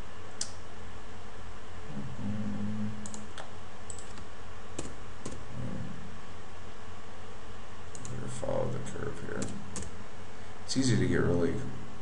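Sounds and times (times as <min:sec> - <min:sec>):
steady background hiss: 0:00.0 - 0:12.0
keyboard and mouse clicks: 0:03.0 - 0:05.4, 0:08.0 - 0:08.2, 0:09.4 - 0:09.9.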